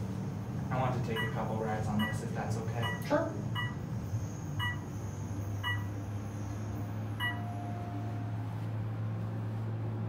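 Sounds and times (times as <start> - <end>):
elevator car humming: 0.0 - 10.0
short electronic beeps: 1.2 - 1.4, 2.8 - 3.8, 4.6 - 5.0, 5.6 - 6.0, 7.2 - 8.3.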